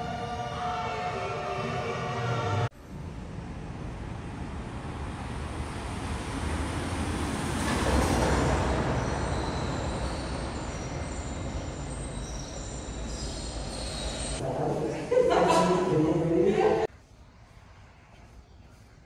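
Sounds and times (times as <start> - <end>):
vehicle passing: 1.6 - 13.6.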